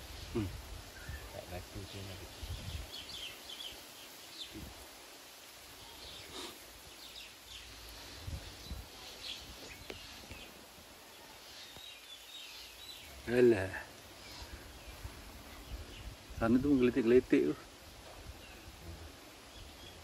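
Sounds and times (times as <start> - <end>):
faint steady hiss: 0.0 - 20.0.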